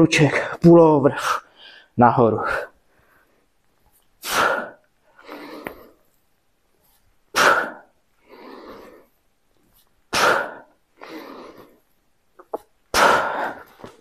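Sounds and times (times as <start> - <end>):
man breathing hard: 4.2 - 6.1, 7.3 - 9.2, 10.1 - 11.9, 12.9 - 14.0.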